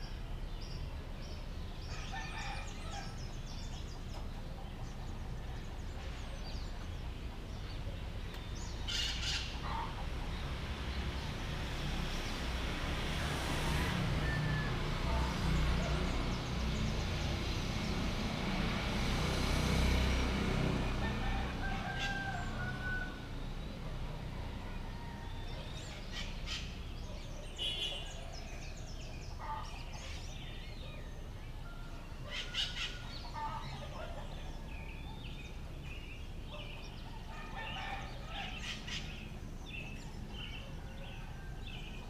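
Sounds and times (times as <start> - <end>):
small birds chirping: 0.0 - 12.7, 25.4 - 42.0
roosters crowing: 1.9 - 3.3, 20.8 - 23.4, 24.2 - 25.8, 37.0 - 38.9.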